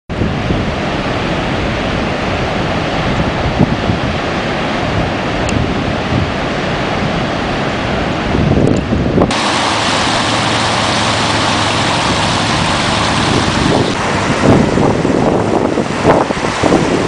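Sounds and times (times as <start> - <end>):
wind buffeting microphone: 0.1 - 17.0
surf breaking on beach: 9.2 - 17.0.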